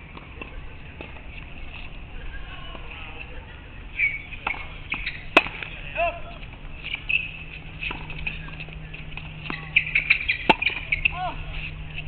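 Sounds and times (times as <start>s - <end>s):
tennis racket hitting ball: 4.4s - 5.7s, 6.8s - 12.0s.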